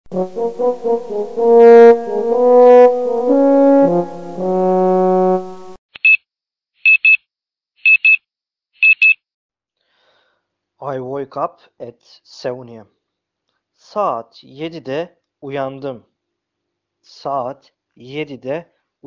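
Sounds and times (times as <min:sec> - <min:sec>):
brass music: 0:00.1 - 0:05.8
alarm clock double beeps: 0:06.9 - 0:07.2, 0:07.8 - 0:08.2, 0:08.8 - 0:09.2.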